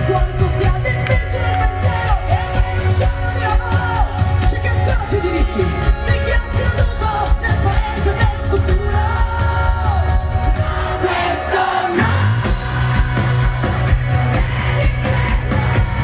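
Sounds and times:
woman singing with live band: 0:00.0 - 0:10.6, 0:14.3 - 0:16.0.

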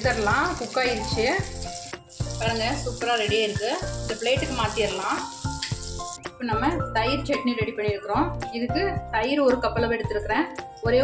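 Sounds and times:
kebabs sizzling in oil: 0:00.0 - 0:06.2.

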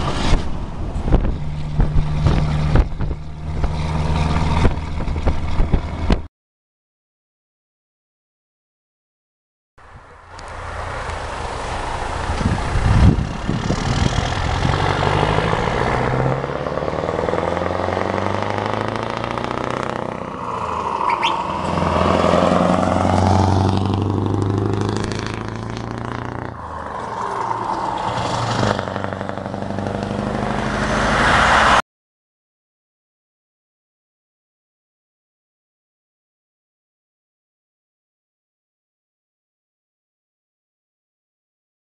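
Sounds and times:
truck engine passing by: 0:00.0 - 0:06.2, 0:09.9 - 0:31.8
road and tyre rush: 0:00.0 - 0:06.3, 0:09.8 - 0:31.8.

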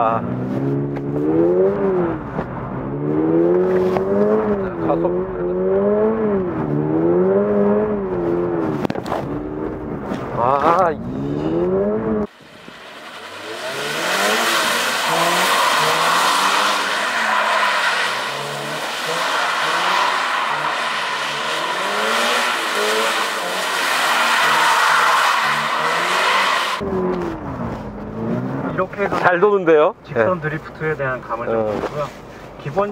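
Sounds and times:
car engine revving: 0:00.0 - 0:29.2
tyres hissing and squealing: 0:12.3 - 0:26.8.

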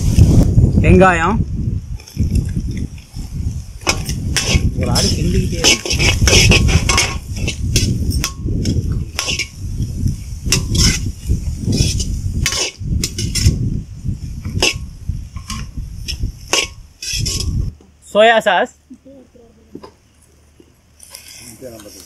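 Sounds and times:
ladle scraping a pan: 0:03.8 - 0:09.6, 0:10.2 - 0:13.6, 0:14.5 - 0:17.7.

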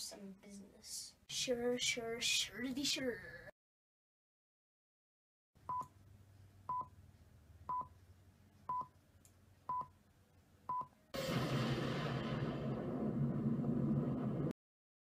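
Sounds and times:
loud rush of noise: 0:11.2 - 0:14.5.

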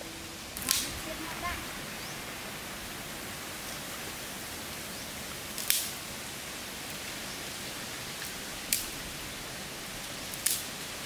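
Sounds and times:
fire hissing: 0:00.0 - 0:11.0
wood fire crackling: 0:00.0 - 0:11.0
fire popping: 0:00.5 - 0:01.6, 0:05.3 - 0:07.2, 0:08.0 - 0:11.0.

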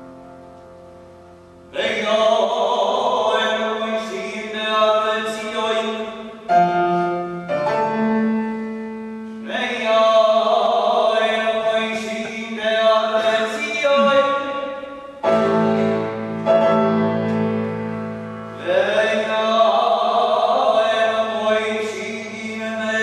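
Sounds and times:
grand piano: 0:00.0 - 0:23.0
person singing operatically: 0:01.7 - 0:06.2, 0:18.6 - 0:23.0.

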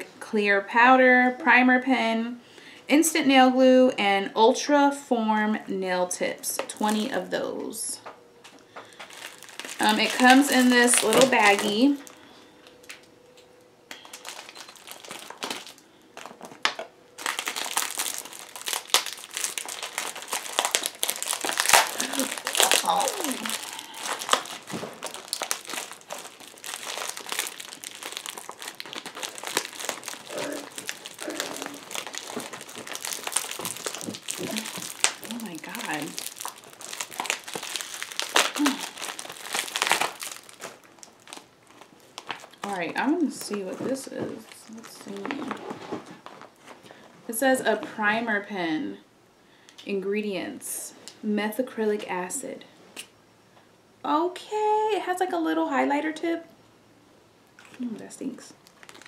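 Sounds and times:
plastic wrapping crinkling: 0:06.6 - 0:07.4, 0:08.4 - 0:48.0, 0:57.6 - 0:59.0.

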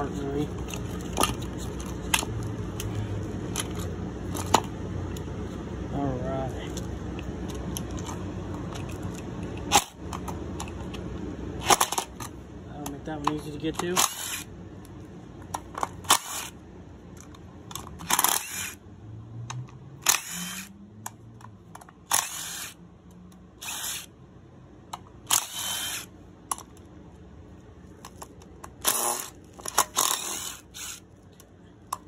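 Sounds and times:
cordless driver spinning screws: 0:13.9 - 0:14.5, 0:16.0 - 0:16.6, 0:18.0 - 0:18.8, 0:20.0 - 0:20.8, 0:22.0 - 0:22.8, 0:23.6 - 0:24.1, 0:25.2 - 0:26.1, 0:28.1 - 0:31.2.

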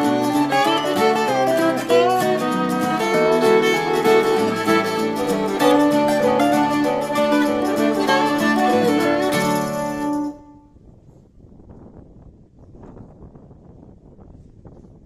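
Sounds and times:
instrumental music with plucked strings: 0:00.0 - 0:10.5.

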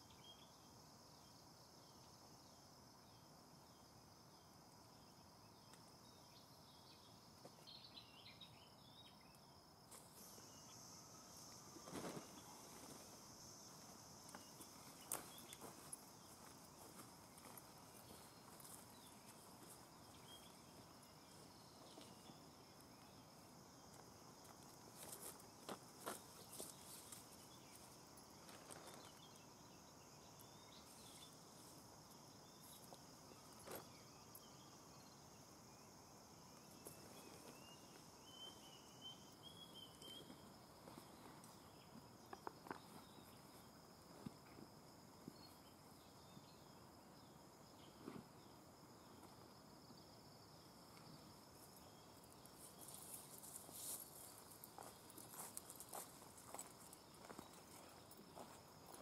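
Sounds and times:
forest insects droning: 0:00.0 - 0:59.0
footsteps on dry grass and twigs: 0:14.3 - 0:22.2, 0:52.8 - 0:59.0.

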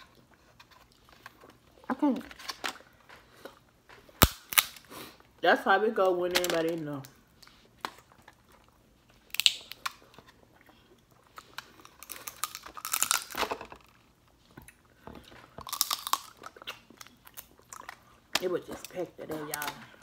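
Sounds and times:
shells cracking: 0:04.2 - 0:04.9, 0:09.3 - 0:10.0, 0:11.9 - 0:13.8, 0:15.6 - 0:18.5
chewing: 0:07.4 - 0:13.3, 0:13.9 - 0:18.9.

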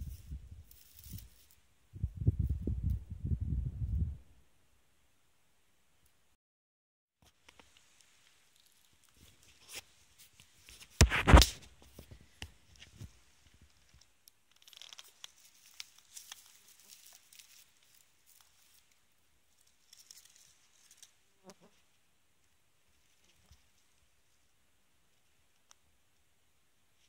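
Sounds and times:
mushroom pulled from ground: 0:00.0 - 0:01.6, 0:07.4 - 0:22.0
rustling of lichen and pine needles: 0:00.0 - 0:01.6, 0:07.3 - 0:25.7.

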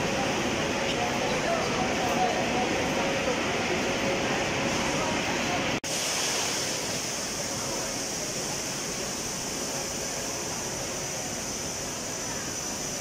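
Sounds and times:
indistinct crowd voices: 0:00.0 - 0:05.8.

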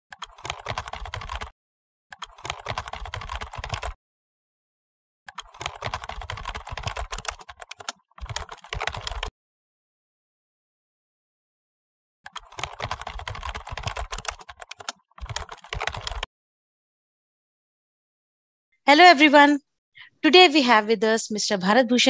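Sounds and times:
keyboard typing clicks: 0:00.1 - 0:01.5, 0:02.1 - 0:04.0, 0:05.3 - 0:09.3, 0:12.3 - 0:16.3.

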